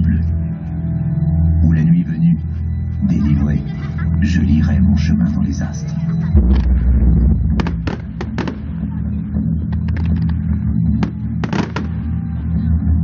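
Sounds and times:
music soundtrack with bass: 0:00.0 - 0:13.0
fireworks bursting bangs: 0:06.4 - 0:08.8, 0:11.0 - 0:12.0.

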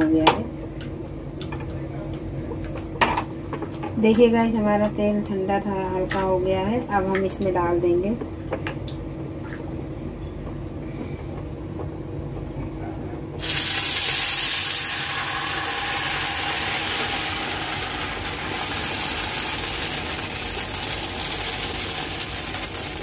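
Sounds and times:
low steady rumble: 0:00.0 - 0:23.0
batter sizzling in hot oil: 0:13.4 - 0:23.0.

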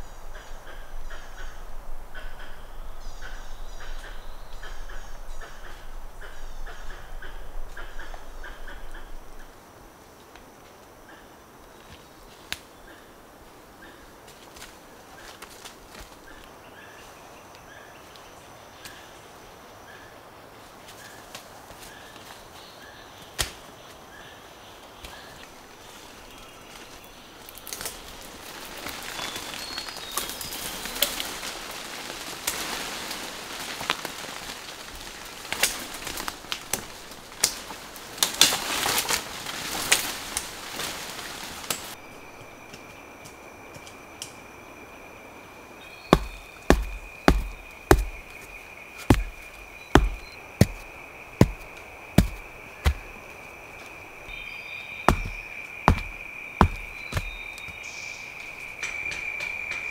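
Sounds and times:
leaves rustling: 0:07.5 - 0:43.9, 0:45.4 - 0:59.9
branches and vines snapping: 0:23.2 - 0:23.7, 0:26.7 - 0:42.0, 0:46.1 - 0:53.2, 0:55.1 - 0:57.9
insect high drone: 0:41.9 - 0:59.9
dull chopping strikes: 0:46.1 - 0:53.2, 0:55.1 - 0:57.7.

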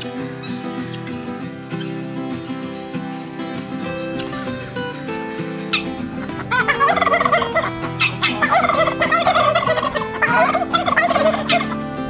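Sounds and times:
turkeys gobbling: 0:04.1 - 0:12.0.

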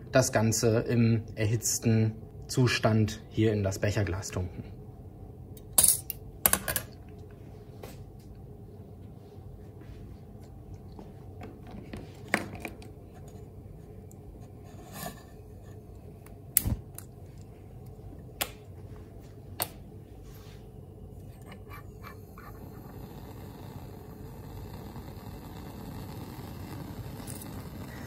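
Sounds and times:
soft gas hiss: 0:12.9 - 0:28.0.

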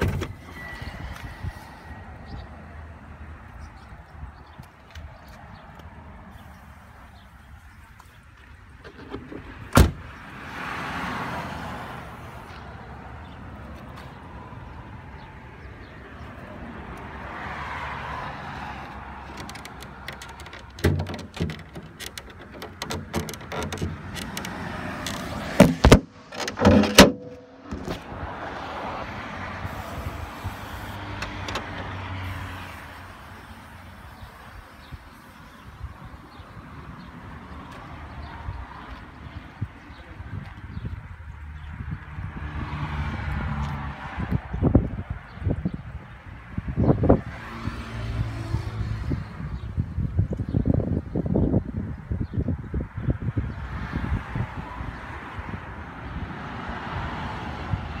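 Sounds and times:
car door shutting: 0:00.0 - 0:00.6, 0:08.8 - 0:10.0, 0:19.3 - 0:28.1
car bonnet latch clunks: 0:08.8 - 0:10.0, 0:19.3 - 0:28.1, 0:31.2 - 0:31.9.

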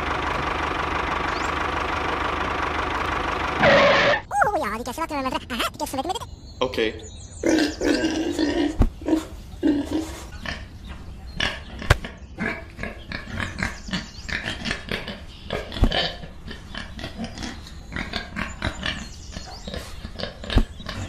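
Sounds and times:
pigs grunting: 0:07.4 - 0:10.8, 0:11.4 - 0:21.0.

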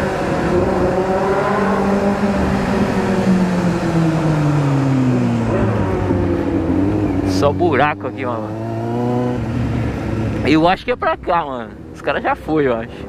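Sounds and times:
motorcycle engine revving down: 0:00.0 - 0:11.2
wind and road noise: 0:00.0 - 0:13.0.

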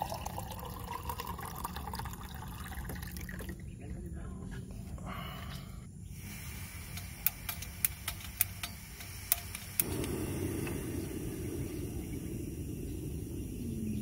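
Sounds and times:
gas burner flame rushing: 0:06.1 - 0:14.0
stove igniter clicking: 0:06.8 - 0:11.1.

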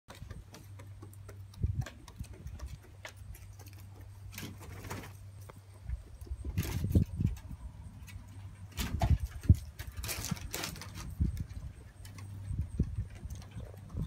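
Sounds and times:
claws ticking on wooden boards: 0:00.1 - 0:14.0
duck flapping wings: 0:04.3 - 0:05.2.

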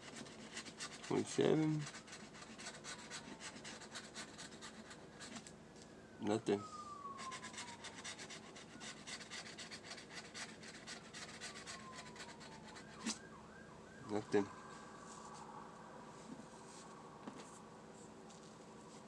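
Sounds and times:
lottery ticket being scratched: 0:00.0 - 0:05.5, 0:07.2 - 0:13.2
faint wailing tone: 0:05.8 - 0:09.2, 0:10.7 - 0:18.0.

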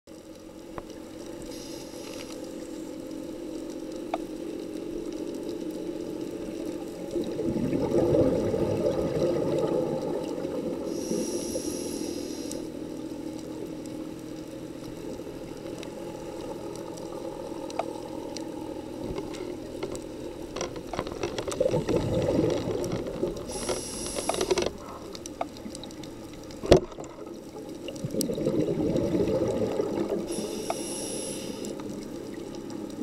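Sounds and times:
regulator hissing inhale: 0:01.5 - 0:02.6, 0:10.8 - 0:12.8, 0:23.4 - 0:25.2, 0:30.2 - 0:32.0
exhaled bubbles rushing: 0:06.9 - 0:11.2, 0:21.4 - 0:24.2, 0:24.8 - 0:30.4.

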